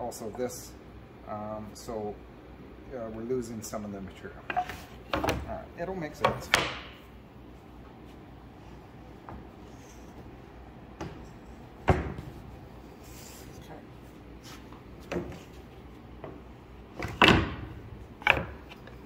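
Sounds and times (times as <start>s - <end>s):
wooden boards knocking: 6.2s - 7.0s.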